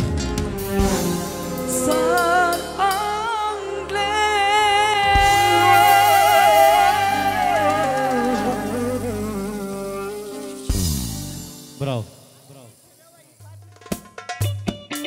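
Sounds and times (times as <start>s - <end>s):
instrumental backing: 0.0s - 15.0s
person singing with vibrato: 1.4s - 10.9s.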